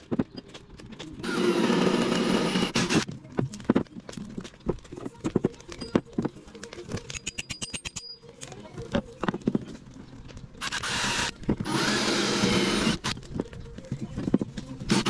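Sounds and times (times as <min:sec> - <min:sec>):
cordless drill running: 0:01.2 - 0:03.0, 0:10.6 - 0:13.1.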